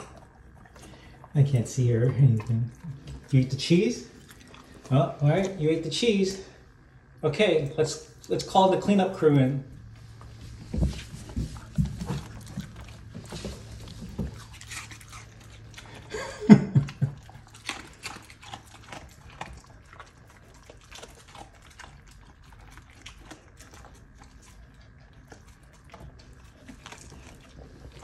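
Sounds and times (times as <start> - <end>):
dog chewing food: 0.0 - 28.0
dog sound: 10.7 - 16.2.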